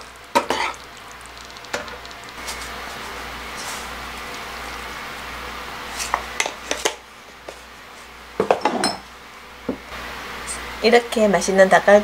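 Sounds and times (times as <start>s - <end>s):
tableware clinking on wooden table: 8.4s - 9.0s.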